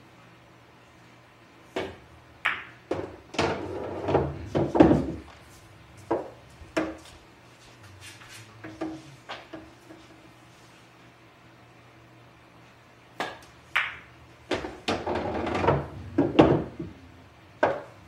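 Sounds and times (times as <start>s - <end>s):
pool balls clicking: 1.8s - 5.4s, 13.2s - 18.0s.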